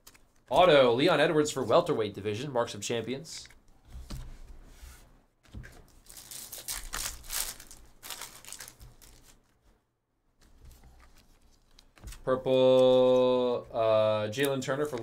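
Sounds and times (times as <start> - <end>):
foil wrapper tearing and crinkling: 6.0 - 9.4.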